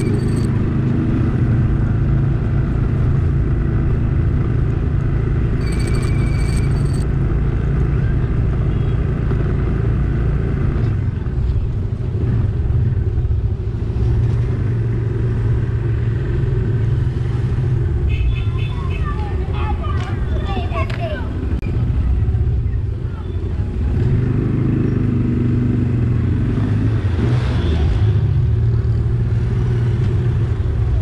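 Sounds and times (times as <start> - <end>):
motorcycle engine running: 0.0 - 10.5
wind and road noise: 0.0 - 31.0.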